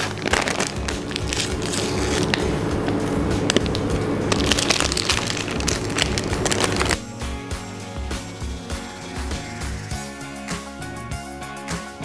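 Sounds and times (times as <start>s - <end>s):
paper tearing and crinkling: 0.0s - 7.0s.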